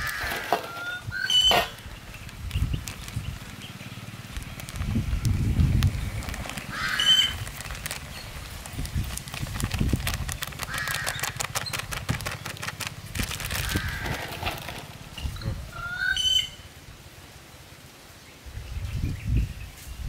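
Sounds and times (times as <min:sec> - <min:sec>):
plastic bag crinkling: 0:00.0 - 0:15.2
birds calling: 0:00.0 - 0:16.8.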